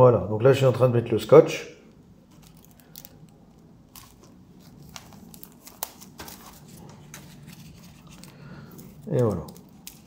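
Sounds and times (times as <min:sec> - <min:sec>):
paper rustling and crinkling: 0:02.3 - 0:10.0.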